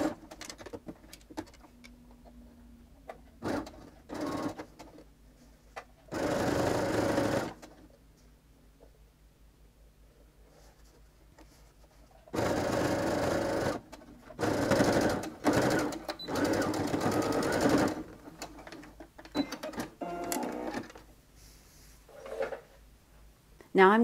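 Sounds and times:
electric sewing machine stitching: 6.1 - 7.6, 12.4 - 18.1.

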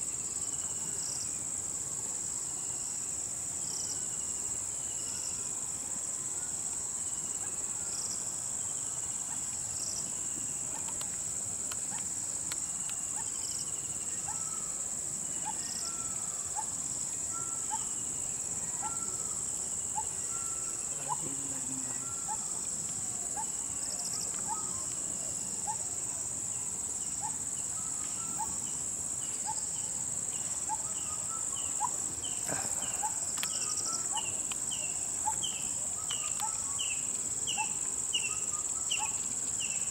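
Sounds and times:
high-pitched insect drone: 12.8 - 26.1.

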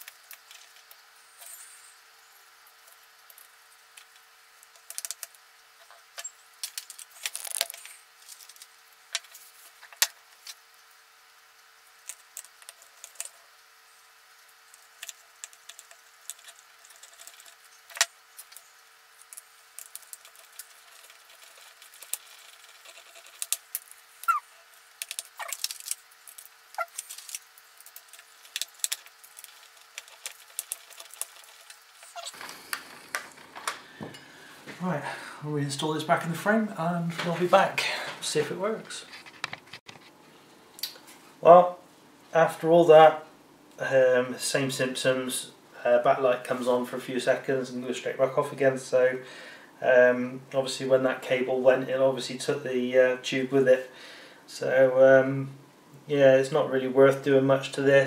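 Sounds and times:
short squeaks: 24.2 - 24.6, 32.0 - 32.6.

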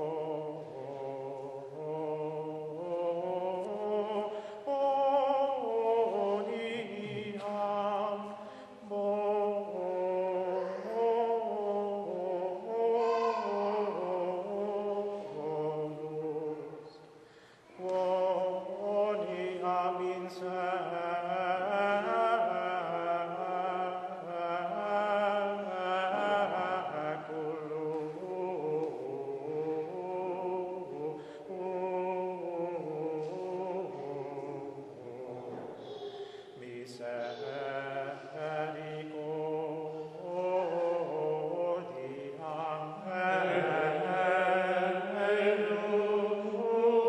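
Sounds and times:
choir singing chant: 0.0 - 17.0, 17.6 - 47.0.

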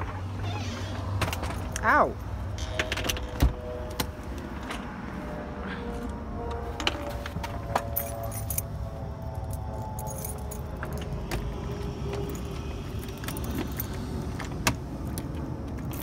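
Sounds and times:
keys jangling: 7.7 - 11.2, 12.1 - 14.4.

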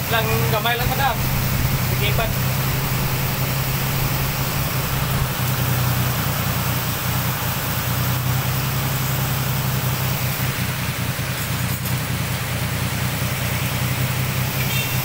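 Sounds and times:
heavy rain pouring: 0.0 - 11.6
low rumble: 0.6 - 6.6.

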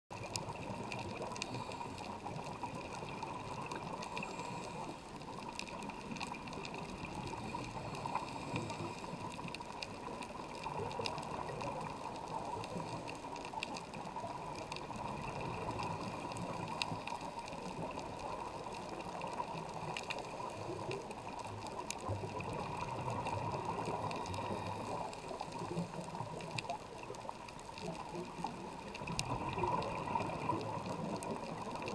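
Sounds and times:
faint clicks: 0.2 - 31.9
underwater rushing hiss: 0.6 - 5.0, 7.3 - 9.3, 22.3 - 26.6.

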